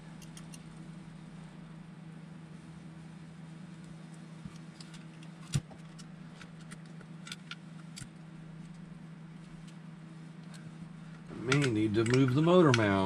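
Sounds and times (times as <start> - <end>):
steady low hum: 0.0 - 13.0
clicks and taps of parts and tools: 11.5 - 13.0.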